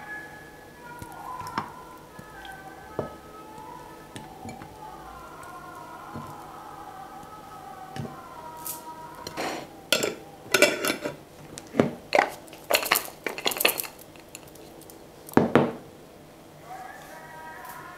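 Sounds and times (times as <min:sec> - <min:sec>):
chocolate pieces clattering in glass: 0:12.6 - 0:14.5.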